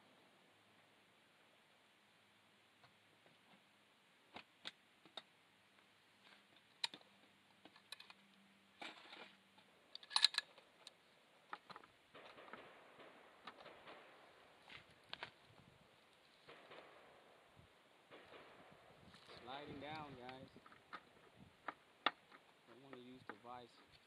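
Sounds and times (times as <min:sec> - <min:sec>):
rifle handling clicks and rattles: 0:06.6 - 0:09.3, 0:09.9 - 0:15.4
rifle bolt metallic clatter: 0:10.0 - 0:10.9.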